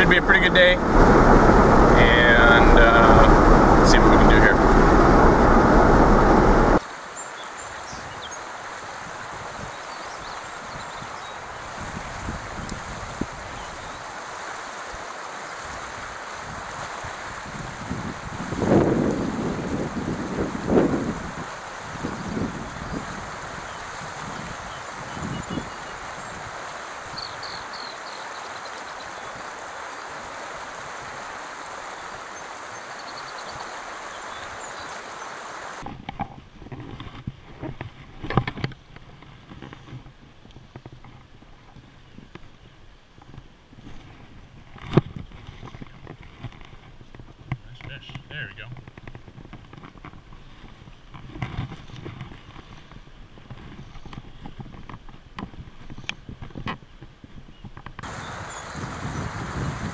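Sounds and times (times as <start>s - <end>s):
water rushing over rocks: 0.0s - 36.0s, 57.9s - 59.9s.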